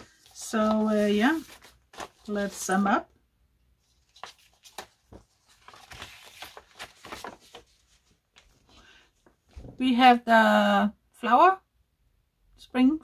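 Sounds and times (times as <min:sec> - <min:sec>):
packaging rustling: 0:04.0 - 0:09.4.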